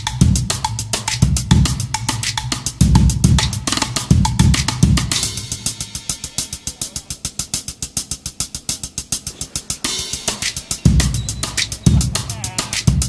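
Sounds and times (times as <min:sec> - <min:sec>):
bass drum: 0:00.0 - 0:05.8, 0:10.7 - 0:13.0
drum-kit beat: 0:00.0 - 0:13.0
hi-hat ticks: 0:00.0 - 0:13.0.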